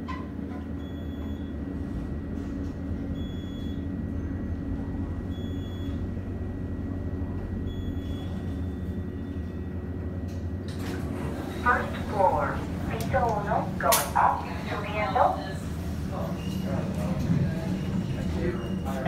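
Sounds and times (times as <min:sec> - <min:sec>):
elevator car humming: 0:00.0 - 0:19.0.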